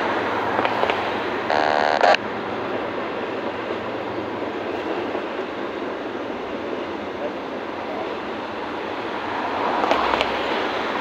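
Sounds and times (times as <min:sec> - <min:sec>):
train wheels on rail: 0:00.0 - 0:11.0
loud pitched tone: 0:01.5 - 0:02.2.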